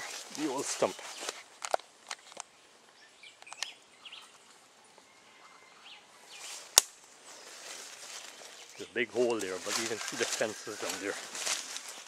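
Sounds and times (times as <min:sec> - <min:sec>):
footsteps through dry undergrowth: 0:00.0 - 0:02.3, 0:06.3 - 0:12.0
faint bird chirps: 0:02.9 - 0:06.6
twig snapping: 0:06.7 - 0:07.1.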